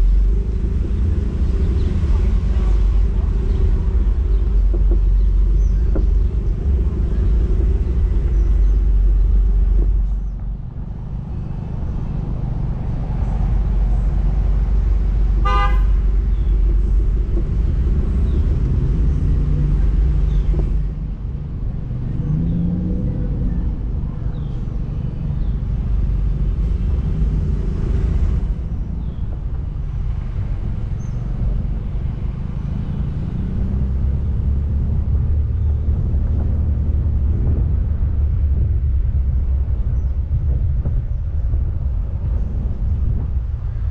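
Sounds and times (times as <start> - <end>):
vehicle road noise: 0.0 - 43.9
wind rumbling on microphone: 0.0 - 43.9
short horn toot: 15.4 - 16.0.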